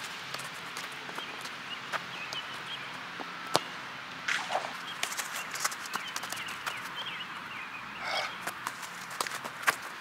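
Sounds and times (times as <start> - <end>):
running footsteps on artificial turf: 4.8 - 7.3, 8.3 - 10.0.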